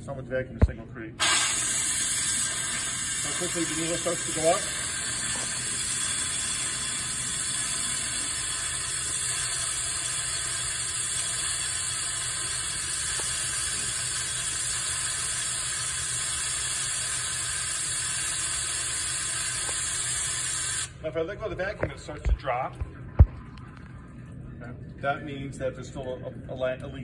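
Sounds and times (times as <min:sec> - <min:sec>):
compressed air hissing: 0:01.2 - 0:21.0.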